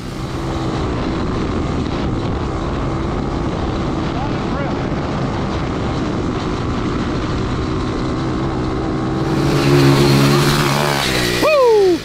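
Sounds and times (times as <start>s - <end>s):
wind noise: 0.0s - 12.0s
go-kart engine under load: 9.0s - 12.0s.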